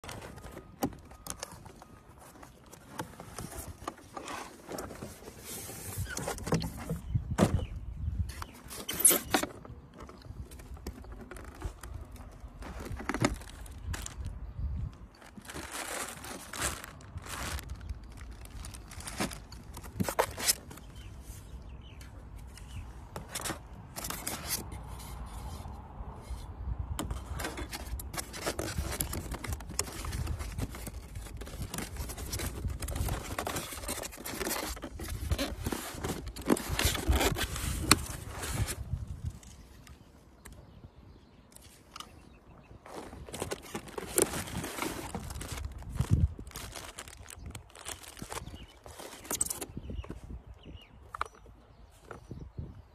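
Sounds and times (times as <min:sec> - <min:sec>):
cardboard box scraping: 0:00.0 - 0:07.8, 0:08.4 - 0:13.9, 0:27.0 - 0:39.2, 0:42.9 - 0:49.7
plastic rustling: 0:08.5 - 0:21.5, 0:27.0 - 0:39.8, 0:42.8 - 0:49.8.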